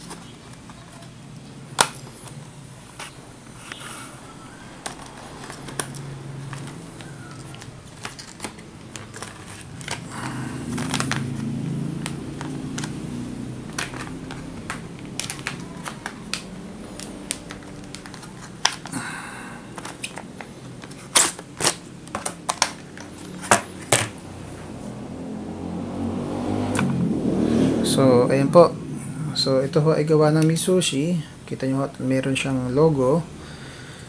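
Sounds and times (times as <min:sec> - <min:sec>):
plastic packaging crackling: 0:00.0 - 0:24.1
plastic snapping: 0:04.8 - 0:13.0, 0:13.7 - 0:19.0, 0:19.8 - 0:24.2.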